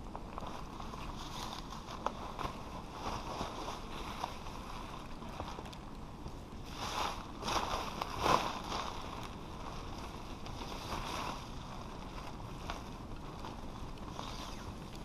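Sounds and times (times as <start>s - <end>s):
wind rumble on microphone: 0.0s - 15.0s
tarp rustling and swishing: 0.4s - 5.7s, 6.6s - 14.9s.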